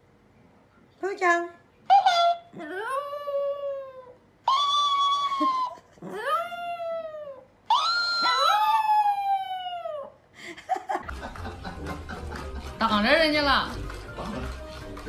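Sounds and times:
dog howling: 0:02.0 - 0:10.1.

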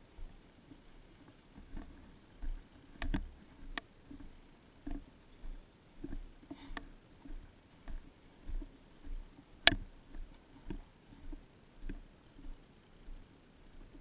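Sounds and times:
footsteps on grass: 0:00.0 - 0:13.2
gear rustle: 0:00.0 - 0:13.2
sharp click: 0:09.6 - 0:09.8.

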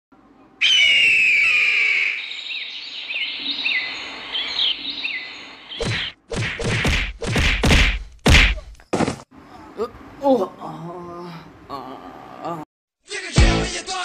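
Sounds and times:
birds calling and chirping: 0:00.6 - 0:06.2.

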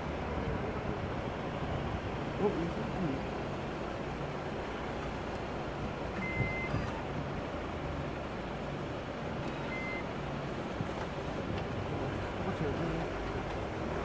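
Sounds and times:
pay machine beeping: 0:06.2 - 0:07.0, 0:09.5 - 0:10.0.

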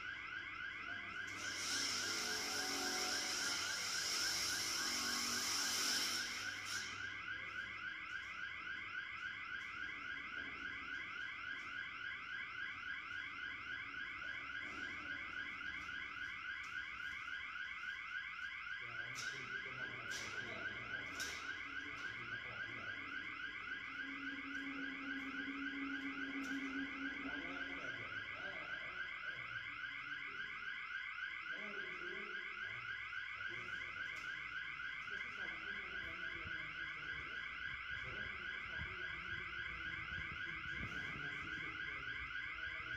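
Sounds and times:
alarm sounder rising sweep: 0:01.4 - 0:07.1, 0:22.4 - 0:29.2.

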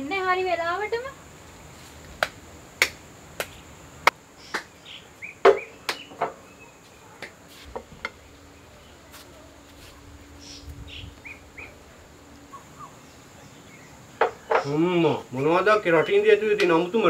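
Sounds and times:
faint bird chirps: 0:04.4 - 0:15.4
footsteps on tiled floor: 0:06.3 - 0:11.2.

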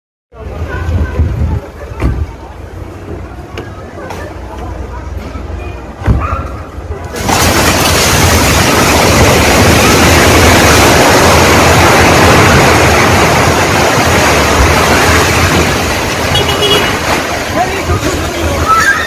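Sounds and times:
building collapsing: 0:06.8 - 0:19.0
rushing roar of falling rubble: 0:06.9 - 0:19.0.

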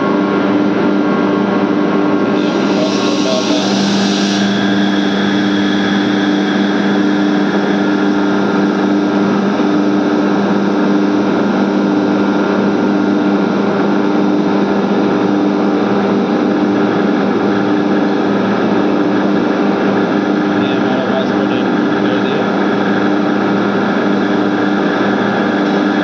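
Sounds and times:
air compressor humming: 0:02.1 - 0:26.0.

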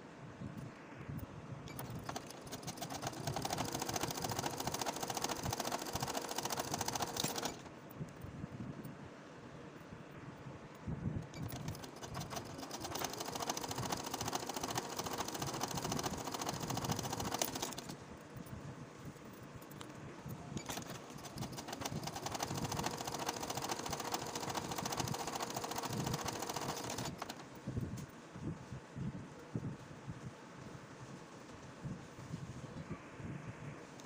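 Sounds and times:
sewing machine stitching: 0:01.7 - 0:07.7, 0:11.3 - 0:18.0, 0:20.6 - 0:27.6.

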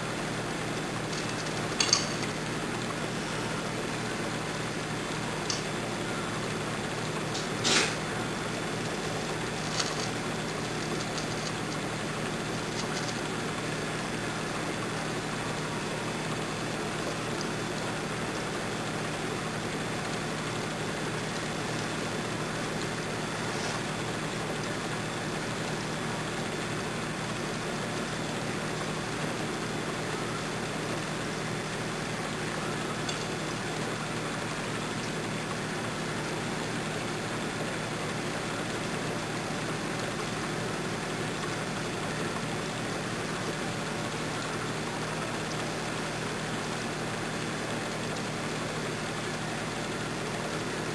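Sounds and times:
low steady hum: 0:00.0 - 0:50.9
torch flame hissing: 0:00.0 - 0:50.9
metal crackling: 0:00.7 - 0:03.4, 0:06.4 - 0:14.0.

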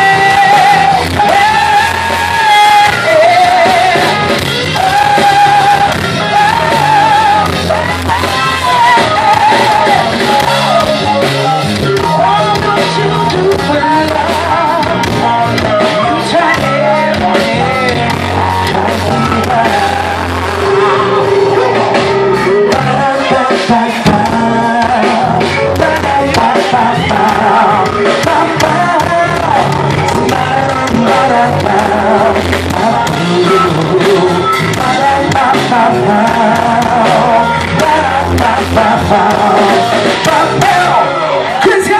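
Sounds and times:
drums: 0:00.0 - 0:41.9
electric guitar: 0:00.0 - 0:41.9
keyboards: 0:00.0 - 0:41.9
man singing: 0:00.0 - 0:41.9.

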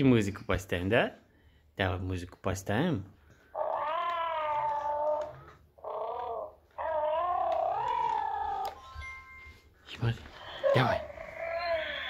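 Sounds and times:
toy bear electronic calls: 0:04.7 - 0:09.0.

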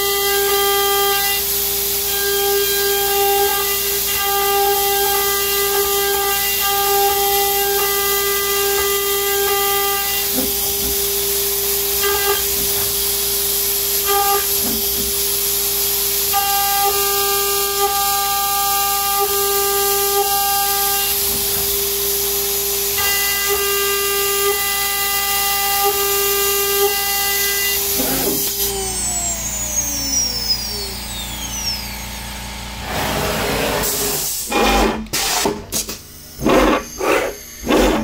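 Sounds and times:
router spindle high whine: 0:00.0 - 0:35.1, 0:36.0 - 0:38.0.

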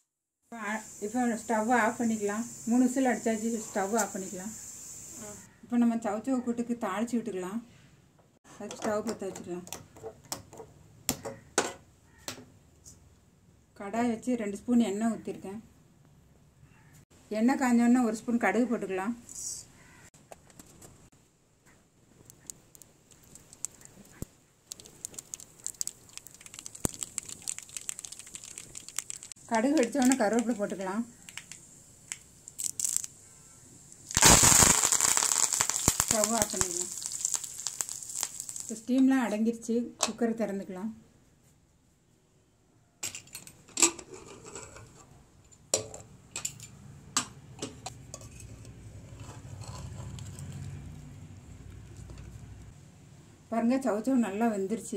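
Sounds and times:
seeds popping in hot oil: 0:22.2 - 0:39.1.

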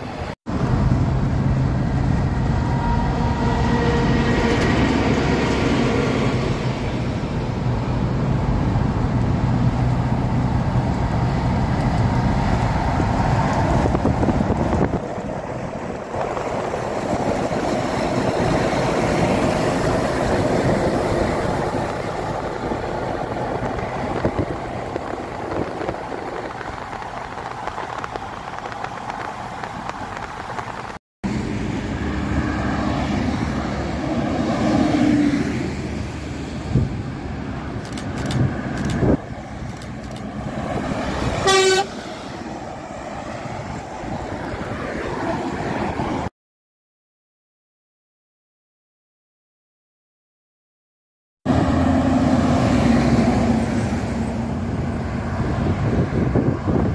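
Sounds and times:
heavy trucks driving by: 0:00.0 - 0:46.3, 0:51.5 - 0:56.9
road and tyre noise: 0:00.0 - 0:46.3, 0:51.5 - 0:56.9
truck horn blast: 0:41.4 - 0:42.1.

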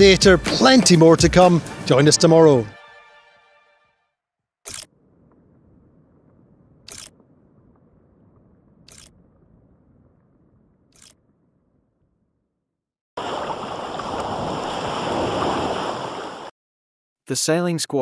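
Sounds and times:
sharp shutter-like clicks: 0:04.6 - 0:04.9, 0:06.9 - 0:07.2, 0:08.9 - 0:09.1, 0:11.0 - 0:11.2
faint low rumble: 0:04.9 - 0:12.3
water rushing along boat hull: 0:13.2 - 0:16.5.

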